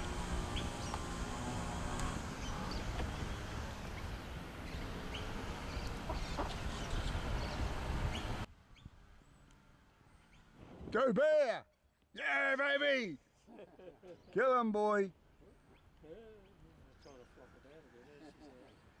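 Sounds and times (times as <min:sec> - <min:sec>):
wind buffeting microphone: 0:02.4 - 0:08.9.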